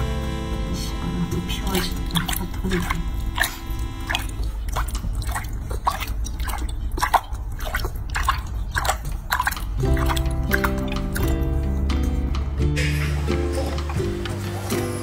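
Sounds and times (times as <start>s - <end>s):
water dripping and splashing: 1.6s - 15.0s
monkey chewing fruit: 1.9s - 12.7s.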